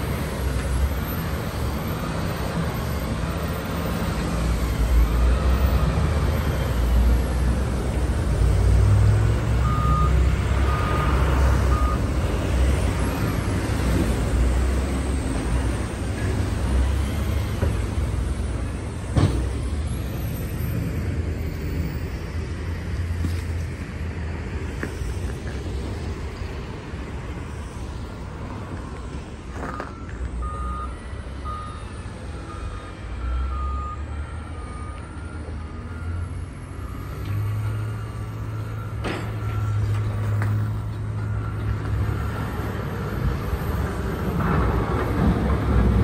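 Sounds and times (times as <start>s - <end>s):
passing street traffic: 0.0s - 46.0s
reversing alarm beeping: 9.5s - 13.6s, 28.6s - 43.9s.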